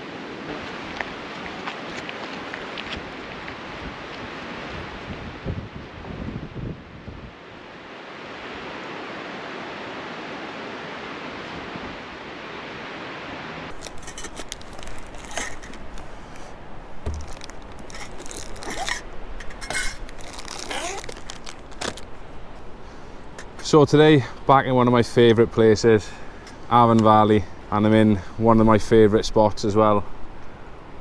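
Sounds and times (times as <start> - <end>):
wind noise on microphone: 2.7 - 7.6.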